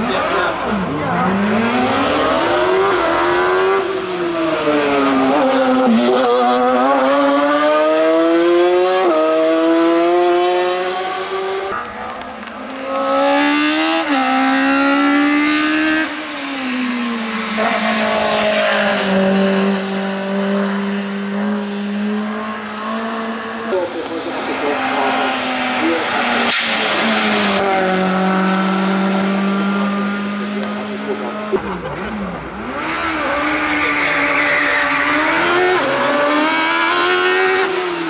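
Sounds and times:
race car engines accelerating: 0.0 - 38.0.

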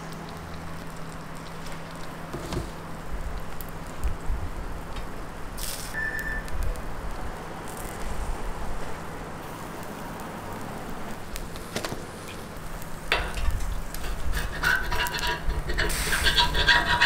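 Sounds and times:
low background hum: 0.0 - 17.0
metal spatula scraping griddle: 13.1 - 17.0.

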